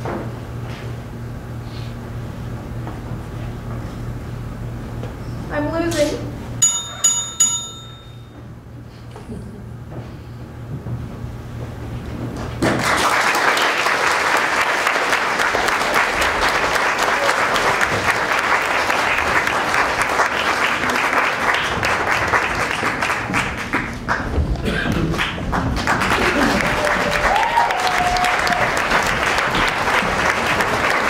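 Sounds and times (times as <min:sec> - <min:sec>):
audience applauding: 0:12.7 - 0:31.0.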